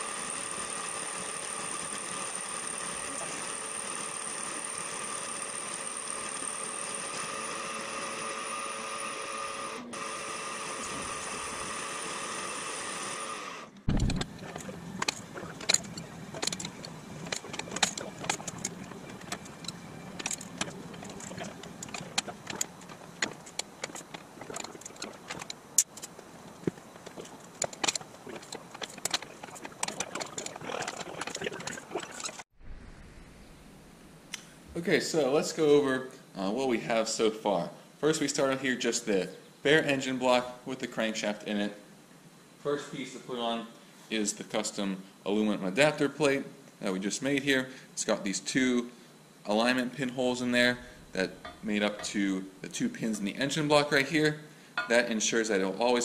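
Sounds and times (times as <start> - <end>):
machine tool whine: 0.0 - 33.1
metal parts clinking and knocking: 13.9 - 31.4.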